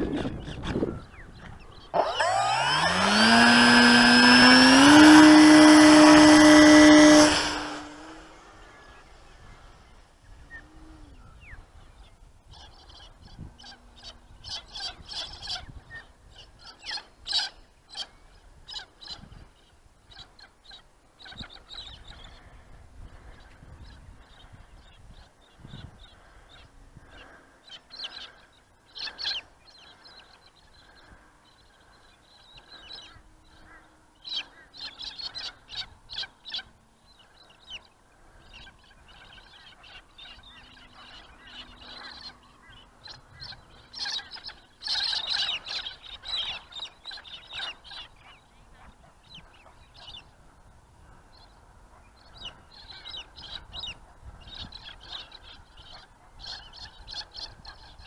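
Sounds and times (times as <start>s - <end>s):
birds honking calls: 0.0s - 11.7s, 25.8s - 50.5s.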